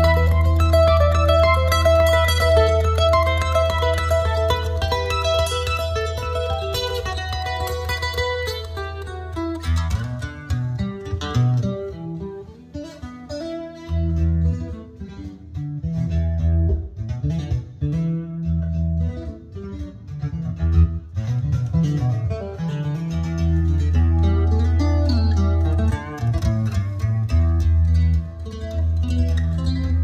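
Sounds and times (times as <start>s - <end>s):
music with deep bass notes: 15.8s - 30.0s.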